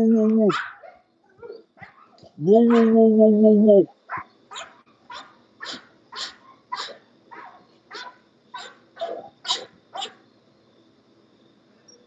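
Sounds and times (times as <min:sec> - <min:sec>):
dog barking: 0:00.5 - 0:03.0, 0:04.1 - 0:10.2.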